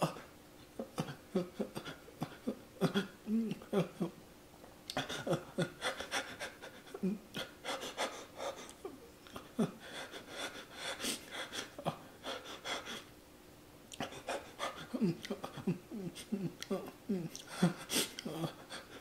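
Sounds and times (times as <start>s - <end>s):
man panting with hissing breaths: 4.9s - 13.1s, 14.0s - 19.0s.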